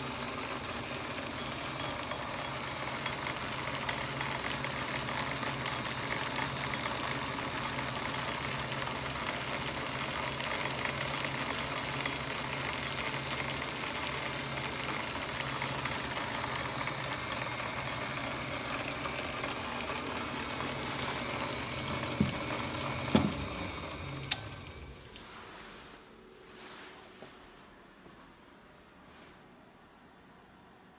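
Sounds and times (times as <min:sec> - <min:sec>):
metal lathe running: 0:00.0 - 0:25.0.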